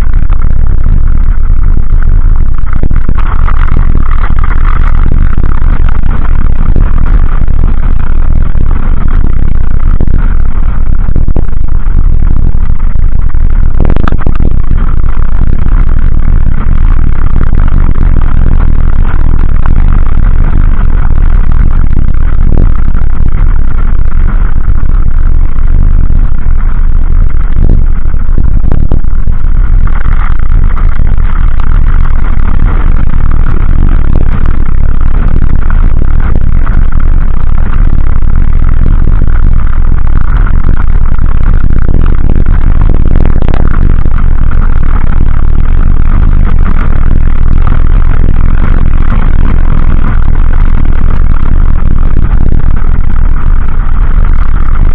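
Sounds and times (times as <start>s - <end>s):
wind buffeting microphone: 0.0s - 54.9s.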